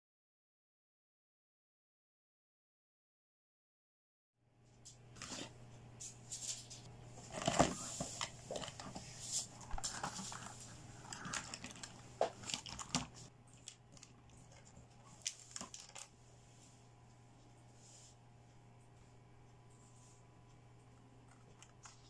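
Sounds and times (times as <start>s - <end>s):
faint low hum: 4.5s - 22.0s.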